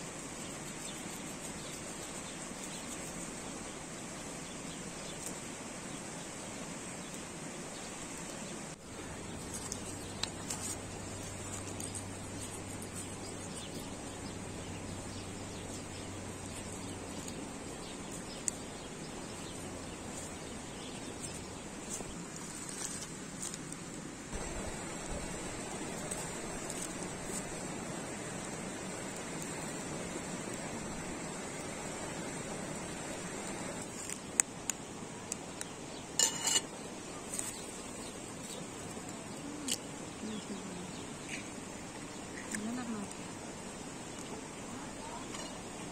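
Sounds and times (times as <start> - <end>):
steady hiss: 0.0 - 45.9
metallic clink: 36.2 - 36.7.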